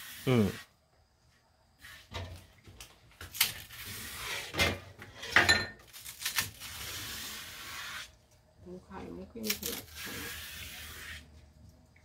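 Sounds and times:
skin tearing off stalks: 3.2s - 4.2s, 5.9s - 8.1s, 9.4s - 11.2s.

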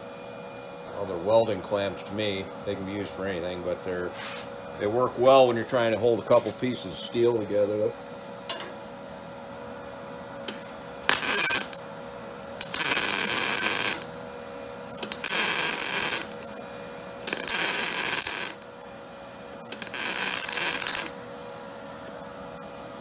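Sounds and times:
welder arc bursts: 10.5s - 21.8s.

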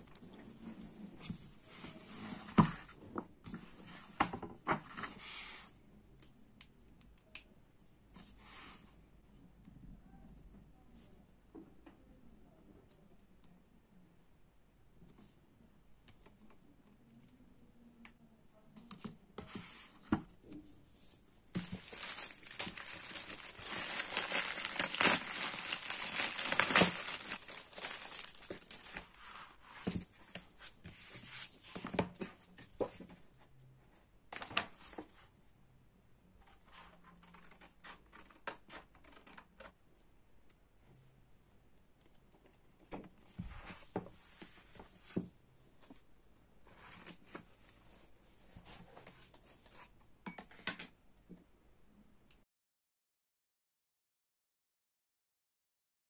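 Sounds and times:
paper crinkling and tearing: 21.6s - 30.0s
page rustles: 21.6s - 32.0s.

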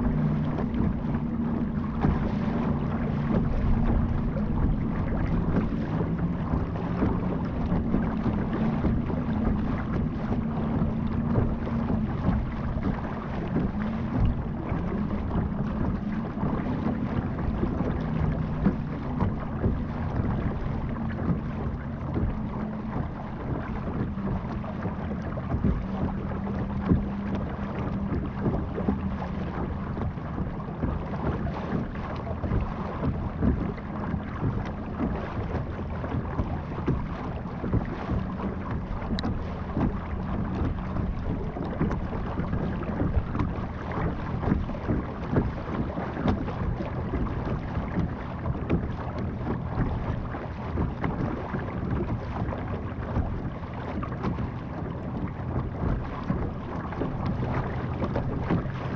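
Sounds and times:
low motor hum: 0.0s - 58.9s
water splashing against hull: 0.0s - 58.9s
wind on microphone: 0.0s - 58.9s.

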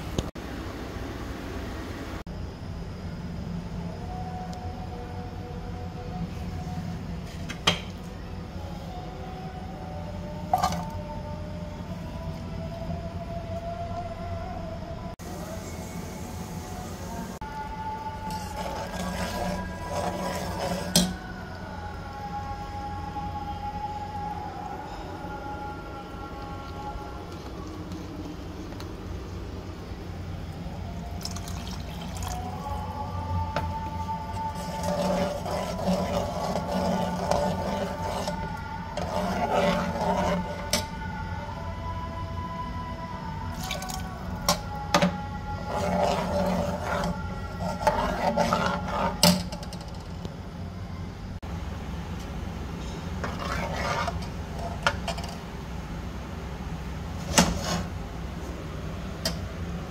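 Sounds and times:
low steady hum: 0.0s - 59.9s
spoon stirring in plastic bowl: 18.3s - 21.2s, 33.6s - 40.9s, 43.5s - 49.6s, 53.2s - 55.4s.

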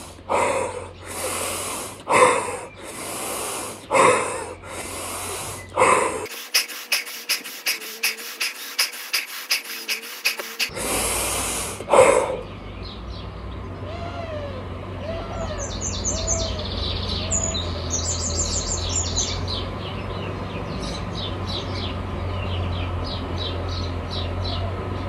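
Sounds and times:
man breathing forcefully: 0.0s - 12.4s
short breath puffs: 0.0s - 12.4s.

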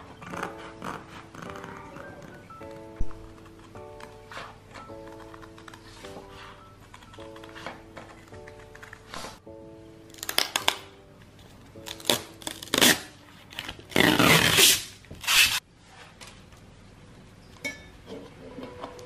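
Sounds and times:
plastic film peeling off: 11.8s - 15.6s.

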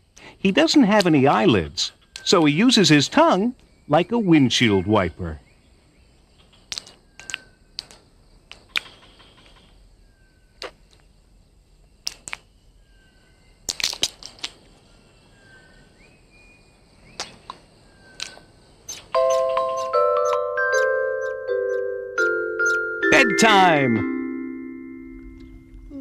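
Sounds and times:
high chirps: 18.0s - 26.0s.

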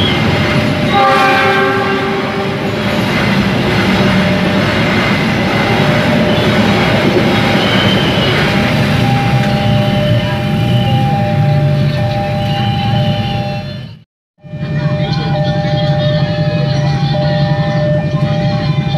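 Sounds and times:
train wheels rumbling on rails: 0.0s - 18.9s
train horn: 0.8s - 2.9s.

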